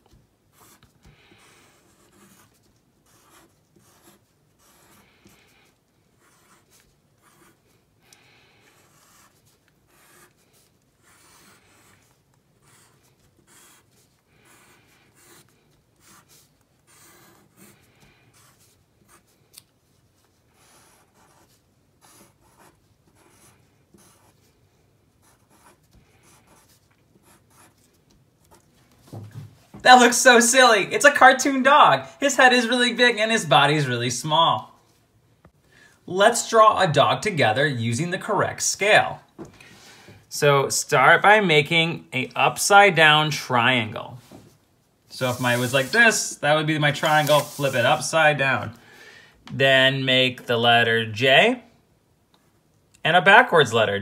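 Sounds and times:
pencil scratching on paper: 0.1 - 7.8, 8.6 - 24.5, 25.1 - 28.7, 45.2 - 46.2, 47.0 - 48.0.

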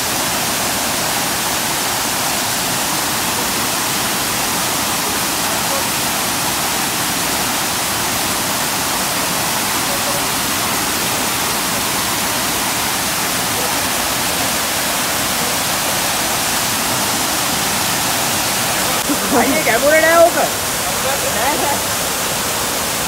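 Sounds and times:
waterfall rushing and splashing: 0.0 - 23.0.

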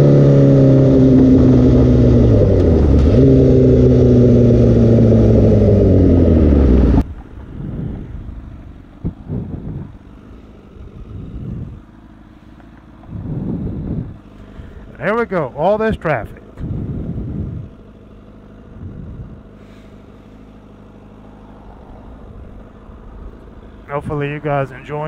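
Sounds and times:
motorcycle engine idling: 0.0 - 25.0.

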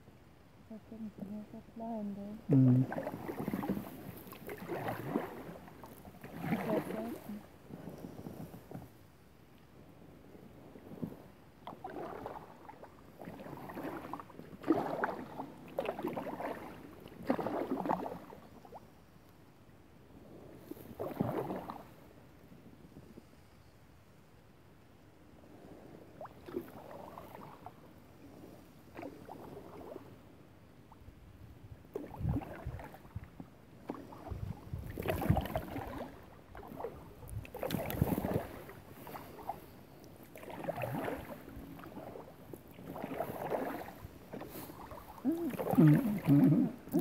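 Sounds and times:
paddle strokes splashing in water: 2.7 - 9.0, 10.4 - 18.9, 20.4 - 22.2, 25.6 - 30.2, 31.8 - 47.0.

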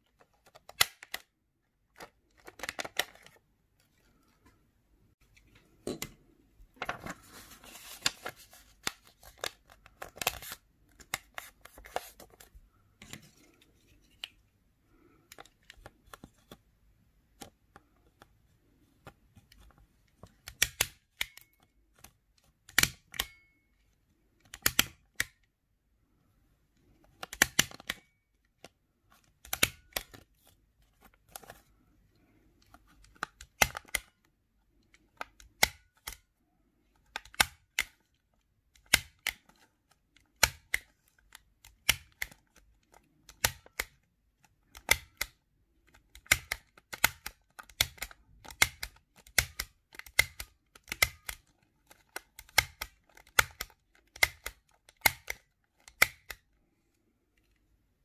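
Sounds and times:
stapler clicking through paper: 0.4 - 1.3, 20.4 - 21.7, 27.2 - 28.0, 37.1 - 38.0, 41.6 - 44.0, 46.0 - 56.4.

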